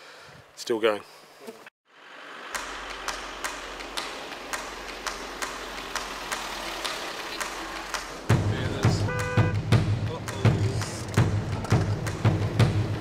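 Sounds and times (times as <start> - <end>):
vehicle engine and tyre noise: 1.9 - 9.5
sharp regular ticking: 2.5 - 12.2.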